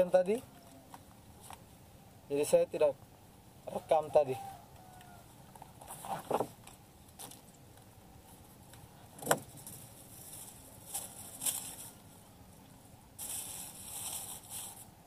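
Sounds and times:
fishing line rustling: 0:09.4 - 0:12.4, 0:13.2 - 0:15.0.

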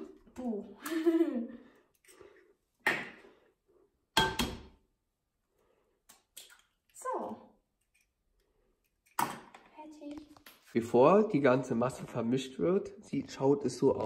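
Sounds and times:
eggs tapped and cracked on bowl: 0:04.1 - 0:04.8.

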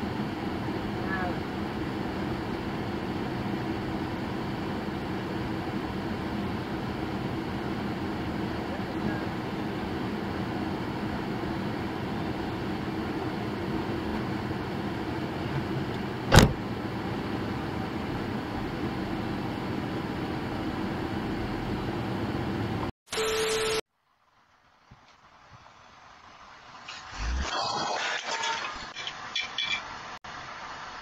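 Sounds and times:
car engine rumble inside cabin: 0:00.1 - 0:22.9.

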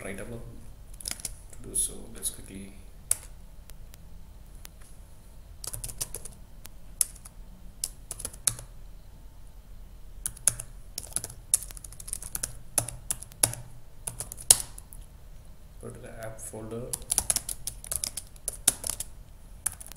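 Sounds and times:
typing on computer keyboard: 0:01.0 - 0:01.4, 0:03.1 - 0:03.3, 0:05.6 - 0:06.4, 0:07.0 - 0:08.7, 0:10.3 - 0:14.8, 0:16.9 - 0:19.9.

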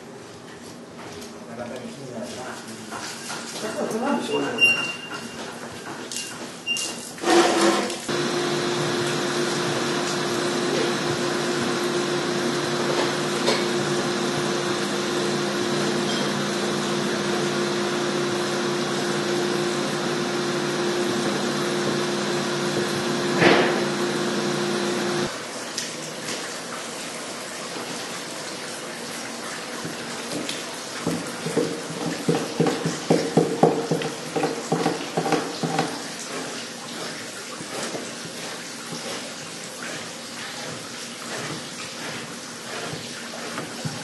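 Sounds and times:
machine motor running: 0:08.1 - 0:25.3.

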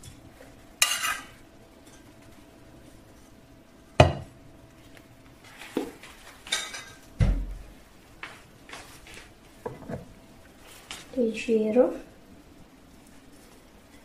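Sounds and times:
metal cookware clanking: 0:00.0 - 0:02.1, 0:06.5 - 0:07.1.

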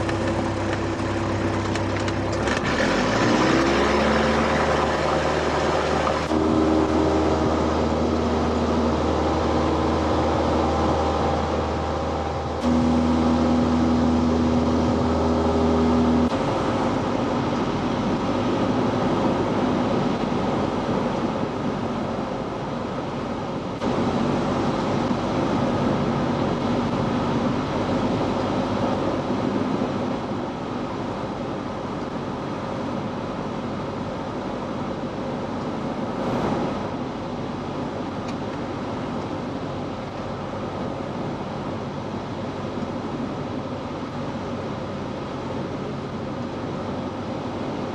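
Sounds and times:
plane engine drone in cabin: 0:00.0 - 0:47.9
steady humming tones: 0:00.0 - 0:47.9
rushing air: 0:35.3 - 0:38.2.

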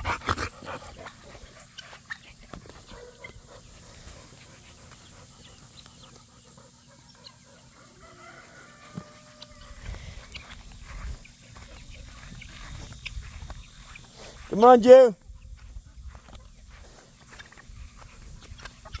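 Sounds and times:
chickens clucking softly: 0:00.4 - 0:14.5, 0:15.3 - 0:19.0.

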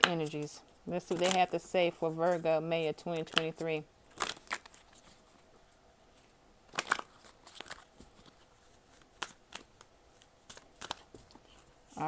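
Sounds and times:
cards rustling and slapping: 0:00.0 - 0:01.6, 0:03.1 - 0:05.4, 0:06.7 - 0:12.0.

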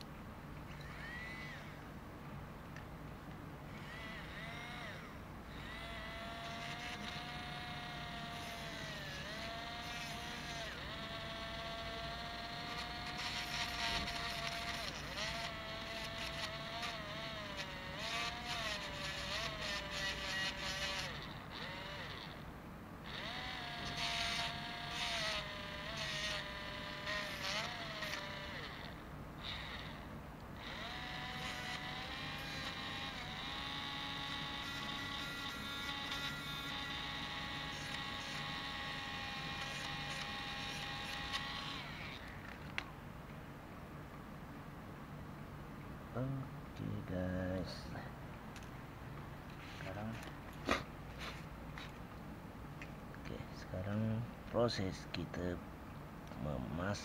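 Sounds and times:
rotary tool whining: 0:00.6 - 0:01.9, 0:03.7 - 0:42.9
scratchy grinding: 0:03.7 - 0:22.3, 0:23.1 - 0:30.0.

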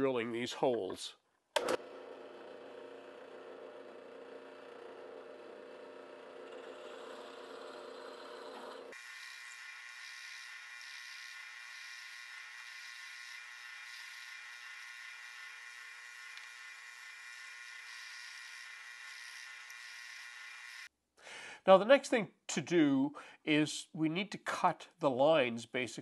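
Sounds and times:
drill press boring wood: 0:01.6 - 0:20.9.

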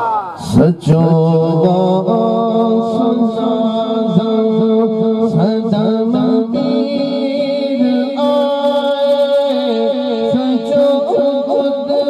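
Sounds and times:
man singing through microphone: 0:00.4 - 0:12.0
steady held tone: 0:06.2 - 0:12.0.

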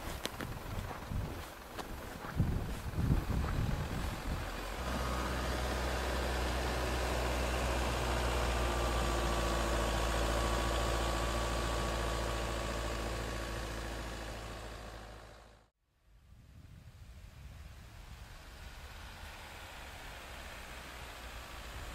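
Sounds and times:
car engine idling: 0:00.0 - 0:15.7.

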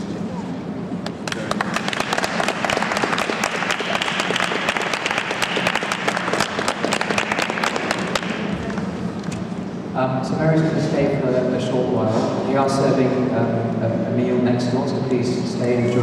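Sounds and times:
audience applause: 0:01.2 - 0:08.8.

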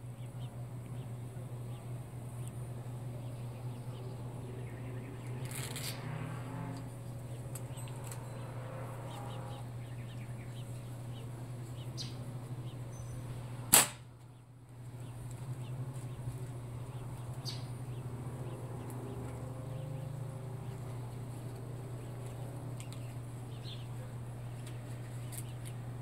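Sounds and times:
steady low hum: 0:00.0 - 0:26.0
slingshot rubber snap: 0:13.7 - 0:14.0.

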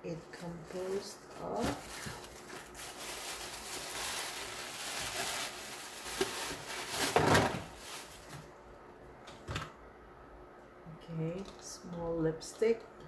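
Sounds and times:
packaging rustling and crinkling: 0:00.6 - 0:08.5.

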